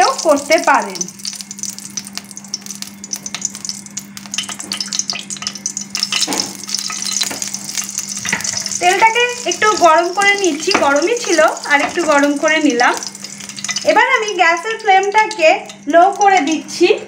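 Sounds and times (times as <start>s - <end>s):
hot oil sizzling and crackling: 0.0s - 17.0s
steel spoon stirring: 4.4s - 16.6s.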